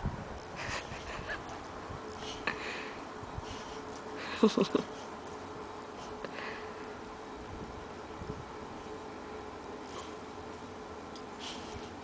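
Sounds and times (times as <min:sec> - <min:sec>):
wind rumble on microphone: 0:00.0 - 0:02.2, 0:07.4 - 0:08.6
faint steady hum: 0:00.0 - 0:12.0
outdoor background hiss: 0:00.0 - 0:12.0.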